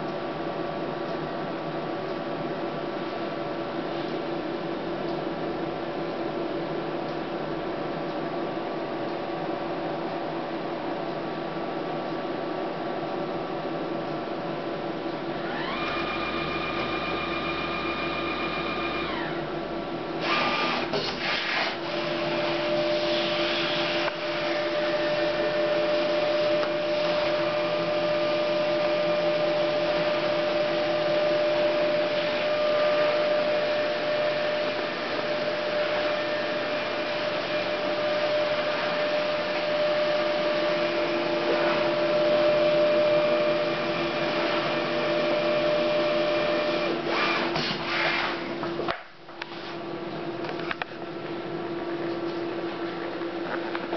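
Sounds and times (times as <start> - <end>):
printer whirring hum: 0.0 - 53.9
printer motor whine: 15.2 - 49.6.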